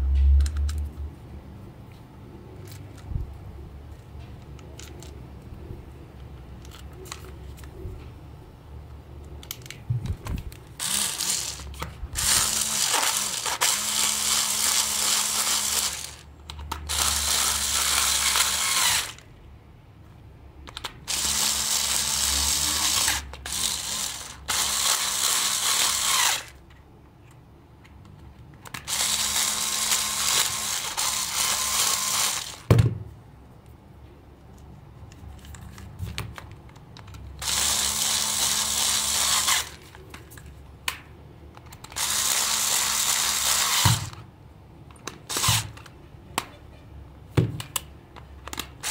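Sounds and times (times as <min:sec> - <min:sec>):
electric screwdriver whining: 0:10.8 - 0:16.2, 0:16.9 - 0:19.2, 0:21.1 - 0:26.6, 0:28.8 - 0:32.7, 0:37.4 - 0:39.8, 0:41.9 - 0:44.2, 0:45.3 - 0:45.8.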